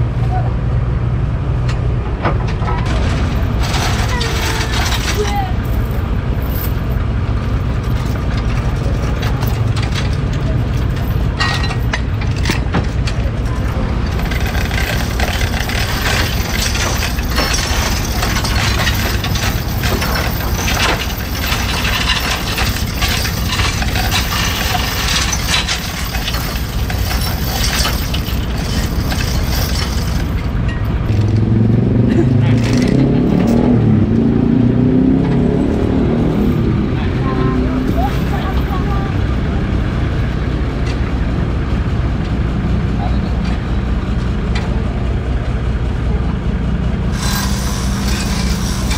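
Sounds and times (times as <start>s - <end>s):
truck engine running: 0.0s - 48.9s
steel chains clinking: 2.8s - 31.5s, 32.1s - 33.8s, 36.0s - 36.8s, 37.4s - 39.1s, 47.1s - 48.9s.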